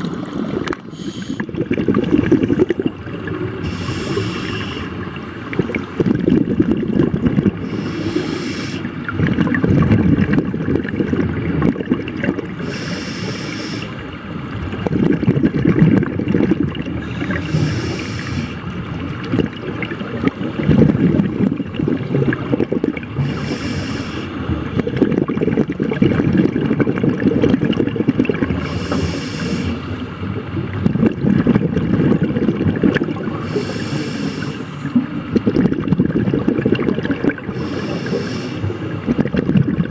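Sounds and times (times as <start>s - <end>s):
exhaled bubbles rumbling underwater: 0.0s - 39.9s
regulator inhalation hiss: 0.9s - 1.4s, 3.6s - 4.9s, 7.7s - 8.9s, 12.6s - 13.9s, 17.1s - 18.6s, 23.2s - 24.3s, 28.7s - 29.9s, 33.4s - 34.8s, 37.6s - 38.7s.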